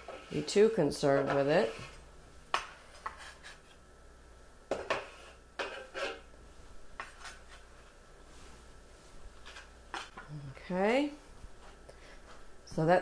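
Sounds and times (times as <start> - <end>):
knife scraping board: 0.0 - 2.0, 2.6 - 3.8, 4.8 - 6.3, 7.0 - 7.7.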